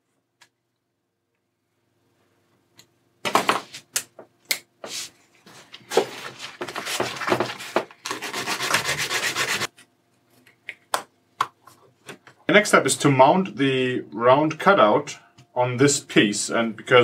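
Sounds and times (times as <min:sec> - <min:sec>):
plastic sanded on sandpaper: 0:08.1 - 0:09.7.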